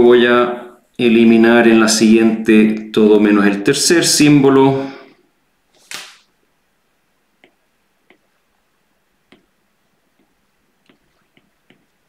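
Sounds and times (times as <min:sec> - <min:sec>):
stylus tapping on tablet screen: 0:09.3 - 0:09.5, 0:10.2 - 0:11.9.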